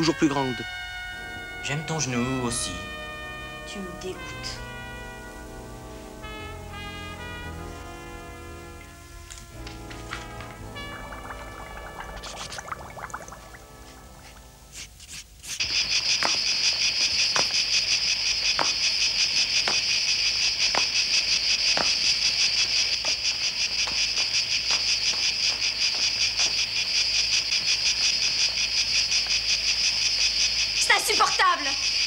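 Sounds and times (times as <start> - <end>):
insect chirring: 8.7 - 14.4, 15.4 - 32.0.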